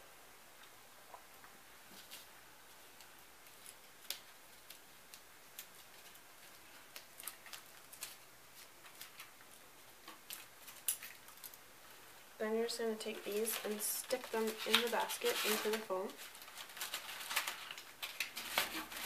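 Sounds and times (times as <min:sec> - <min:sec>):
tape and wire clicking: 0:02.9 - 0:11.6, 0:13.2 - 0:19.0.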